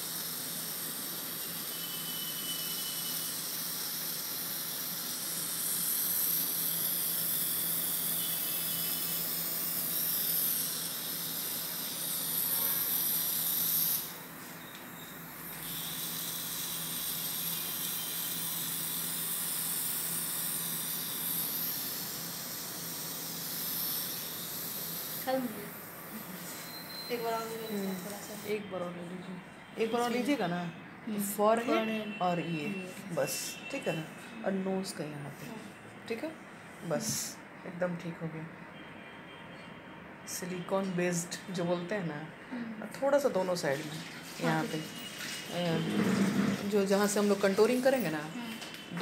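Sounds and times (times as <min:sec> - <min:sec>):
airbrush spraying air hiss: 0:00.0 - 0:01.8, 0:03.0 - 0:08.2, 0:15.6 - 0:26.7.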